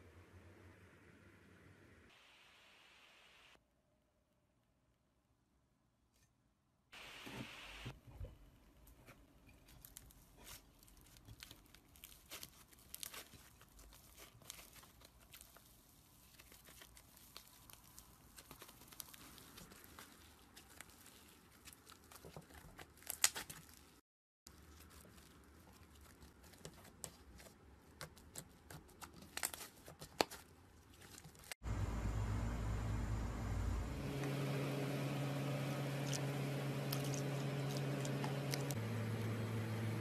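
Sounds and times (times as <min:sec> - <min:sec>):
slime squishing and tearing: 0:09.7 - 0:31.5, 0:36.0 - 0:38.7.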